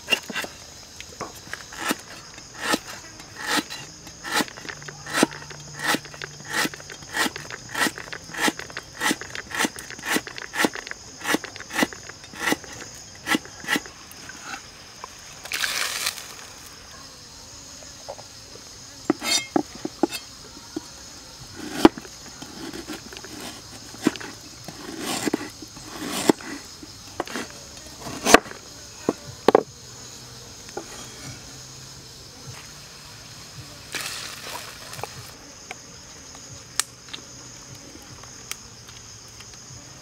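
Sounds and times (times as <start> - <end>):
insects buzzing: 0.0 - 40.0
cleaver chopping on wooden board: 1.2 - 13.9, 19.1 - 20.3, 27.2 - 28.5.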